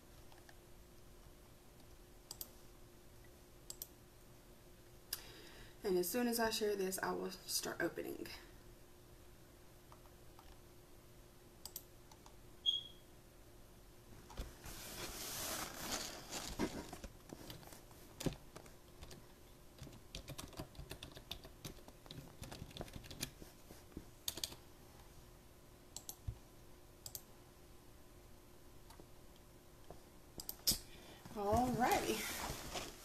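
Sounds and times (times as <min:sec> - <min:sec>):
handling rustle: 0:14.6 - 0:18.0, 0:31.4 - 0:33.0.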